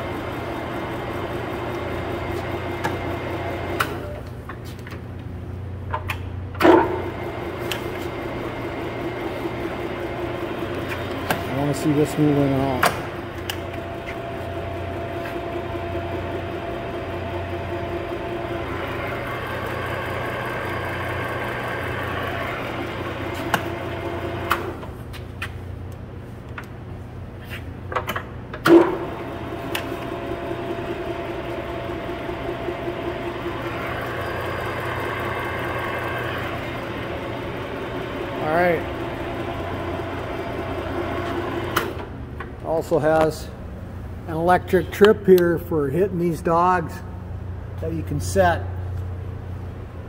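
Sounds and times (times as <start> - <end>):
lathe running with whine: 0.0 - 4.0, 6.6 - 24.8, 28.8 - 42.2.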